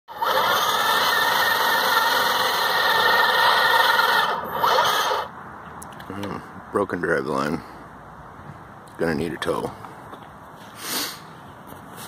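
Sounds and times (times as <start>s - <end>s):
toy truck motor whining: 0.1s - 5.3s.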